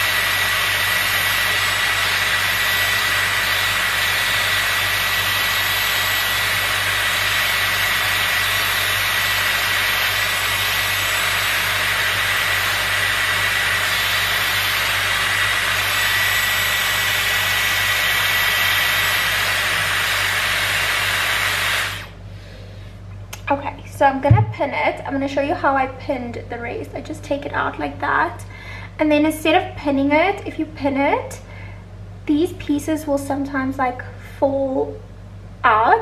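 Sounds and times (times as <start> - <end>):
hair styler blowing air: 0.0 - 22.2.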